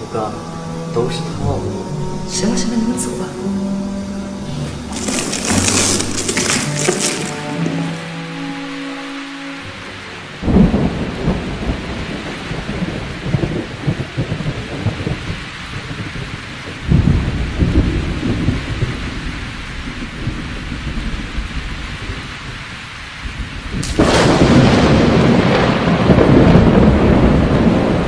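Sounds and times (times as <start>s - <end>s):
steady rain: 0.0s - 28.0s
rolling thunder: 10.4s - 28.0s.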